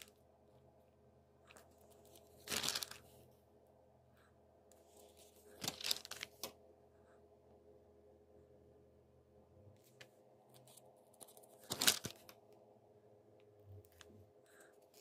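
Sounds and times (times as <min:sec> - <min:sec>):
faint steady hum: 0:00.0 - 0:15.0
rustling or crinkling: 0:01.5 - 0:03.3, 0:04.8 - 0:06.6, 0:09.8 - 0:12.4.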